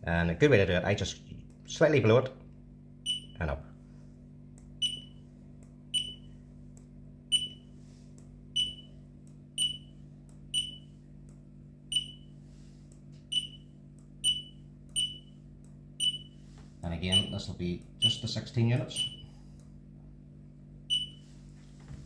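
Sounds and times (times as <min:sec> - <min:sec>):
barcode scanner beeps: 0:03.1 - 0:03.4, 0:04.8 - 0:05.1, 0:06.0 - 0:06.3, 0:07.3 - 0:07.6, 0:08.6 - 0:08.9, 0:09.6 - 0:09.9, 0:10.5 - 0:10.9, 0:11.9 - 0:12.3, 0:13.3 - 0:15.3, 0:16.0 - 0:16.4, 0:17.1 - 0:18.2, 0:18.9 - 0:19.2, 0:20.9 - 0:21.2.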